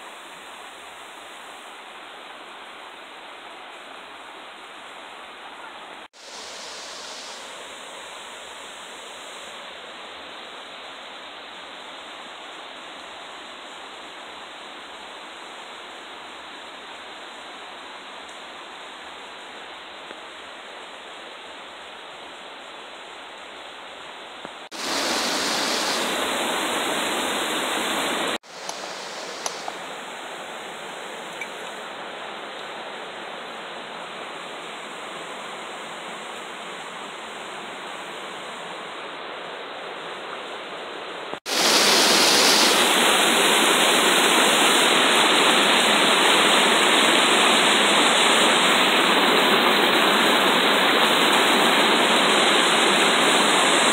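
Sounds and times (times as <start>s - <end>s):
small water cascade: 0.0s - 53.9s
river water rushing over stone: 24.7s - 38.1s, 41.4s - 53.9s.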